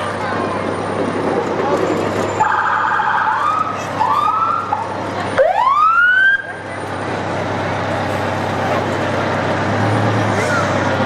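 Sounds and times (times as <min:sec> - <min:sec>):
fire engine siren whooping: 0:02.3 - 0:06.7.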